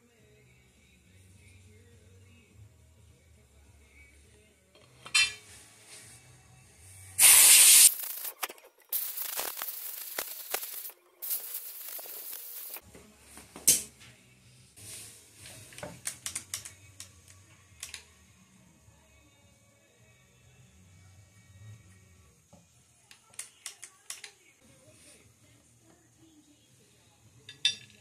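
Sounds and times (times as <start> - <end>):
compressed air blow gun hissing: 7.2 - 12.8.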